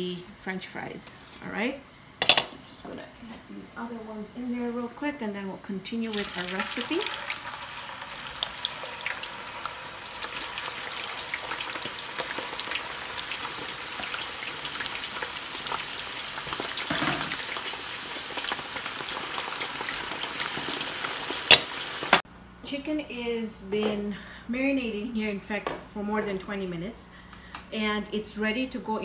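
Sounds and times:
fries sizzling in hot oil: 5.9s - 22.2s.

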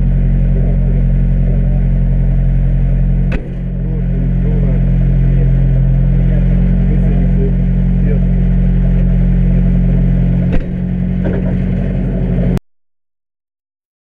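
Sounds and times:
car engine idling: 0.0s - 12.6s
sharp click: 3.3s - 3.6s, 10.5s - 11.6s.

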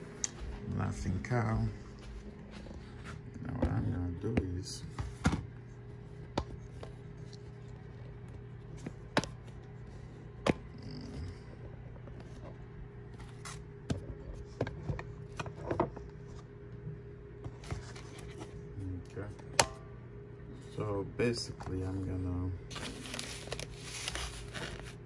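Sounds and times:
microwave oven humming: 0.0s - 25.0s
plastic bag crinkling: 22.7s - 25.0s.

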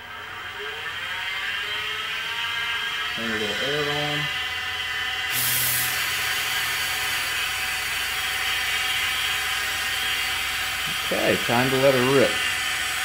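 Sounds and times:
milling machine spindle whine: 0.0s - 13.0s
compressed air hissing from nozzle: 5.3s - 13.0s.

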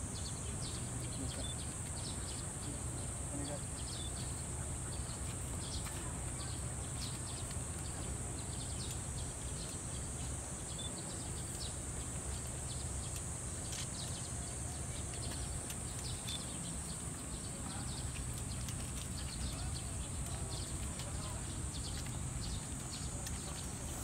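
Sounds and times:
cicadas droning: 0.0s - 24.0s
faint clicks: 14.9s - 24.0s.

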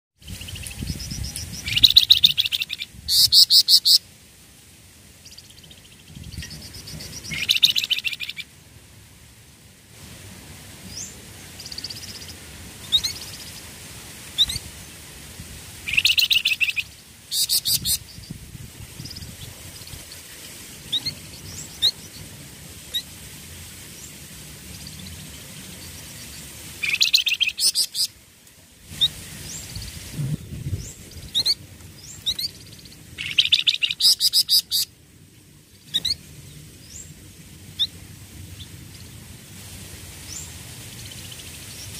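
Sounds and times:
birds trilling rapidly: 0.2s - 4.0s, 5.2s - 8.5s, 23.9s - 28.1s, 29.0s - 34.9s.

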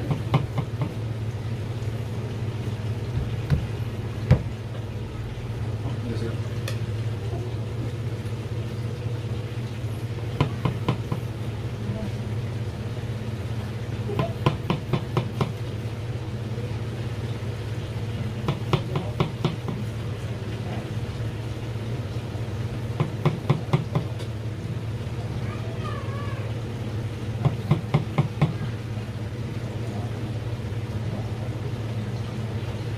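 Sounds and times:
steady low hum: 0.0s - 32.9s
knife tapping on cutting board: 10.4s - 11.2s, 14.2s - 15.6s, 18.4s - 19.9s.

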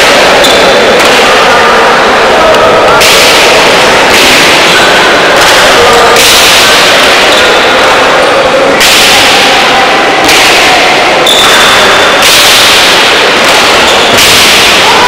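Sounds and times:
ball cracking against wall echoing: 2.5s - 8.1s, 8.8s - 15.0s.

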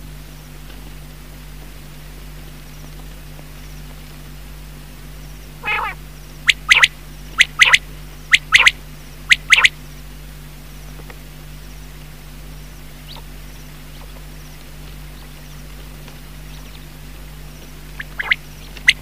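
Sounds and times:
quail three-note song: 5.6s - 9.8s.

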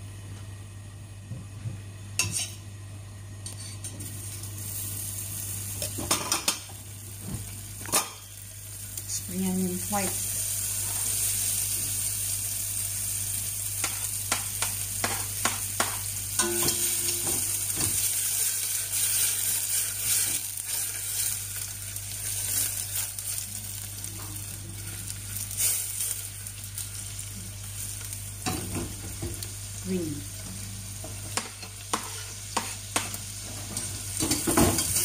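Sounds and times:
onion sizzling in a pot: 1.8s - 35.0s
scrape in pot: 2.2s - 2.6s, 3.4s - 3.9s, 31.9s - 32.8s.

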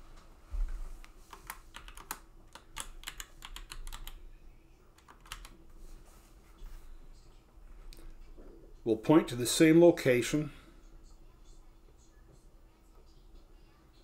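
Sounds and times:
typing on computer keyboard: 1.3s - 4.2s, 5.0s - 5.6s.

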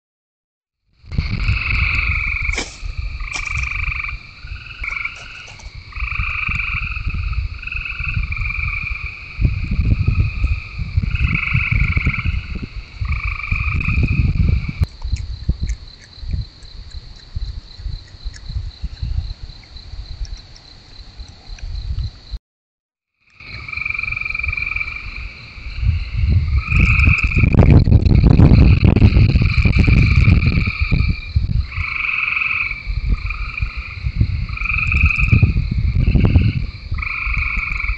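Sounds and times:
frogs calling in chorus: 1.0s - 21.8s, 23.2s - 37.9s
rough low rumble: 1.0s - 22.4s, 23.4s - 31.9s.

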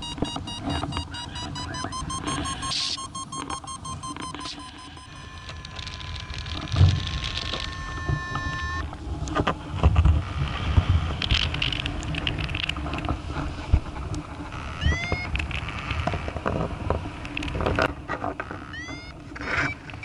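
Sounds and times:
clicks: 0.0s - 8.6s
short rising chirps: 0.5s - 5.4s
wind rushing over microphone: 8.9s - 18.1s.

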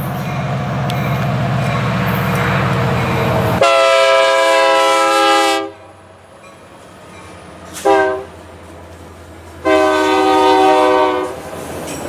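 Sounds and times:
diesel locomotive engine rumble: 0.0s - 12.0s
train air horn blast: 3.6s - 5.8s, 7.8s - 8.4s, 9.6s - 11.4s.

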